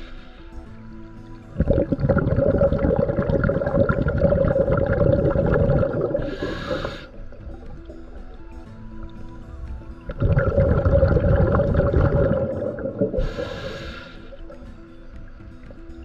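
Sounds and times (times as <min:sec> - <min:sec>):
regulator inhale hiss: 0:00.0 - 0:00.9, 0:06.0 - 0:07.6, 0:12.8 - 0:14.9
regulator bubbling underwater: 0:01.0 - 0:16.0.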